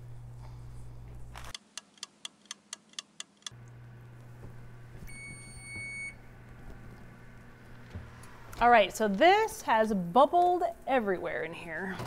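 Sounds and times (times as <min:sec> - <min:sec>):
clock ticking: 0:01.6 - 0:03.6
oven timer beeping: 0:05.1 - 0:06.3.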